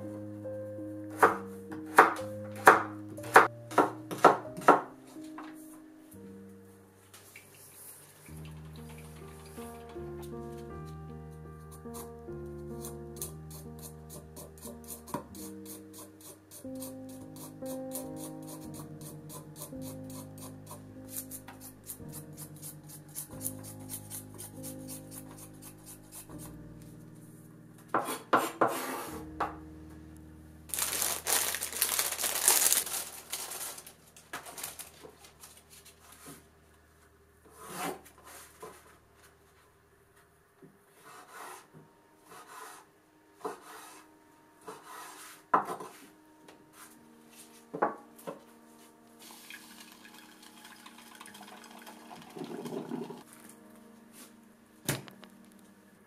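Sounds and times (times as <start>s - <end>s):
soft sustained music tones: 0.0s - 37.4s, 41.6s - 56.0s
knife scraping across board: 28.0s - 29.3s, 37.5s - 38.8s, 40.9s - 41.7s, 42.3s - 46.1s.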